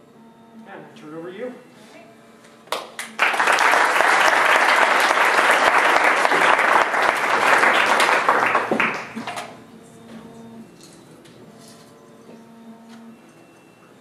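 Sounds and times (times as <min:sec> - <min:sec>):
audience applauding: 0:02.7 - 0:09.4.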